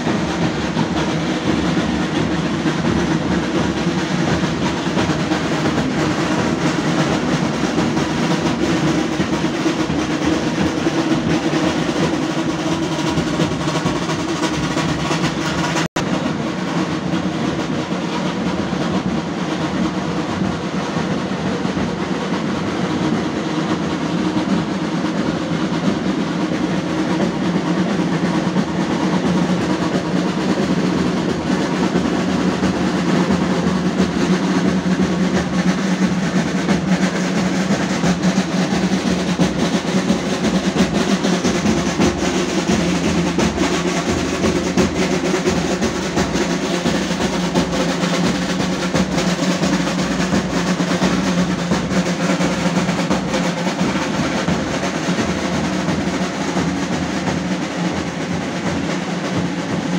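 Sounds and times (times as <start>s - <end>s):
procession drums rolling: 0.0s - 59.9s.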